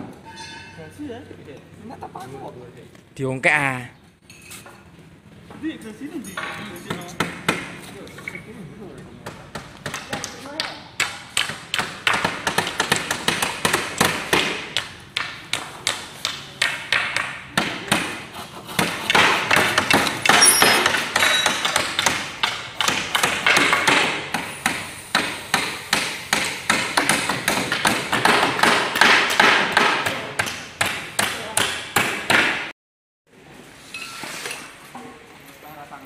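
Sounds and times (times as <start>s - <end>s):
hammer nailing wooden planks: 9.3s - 32.7s.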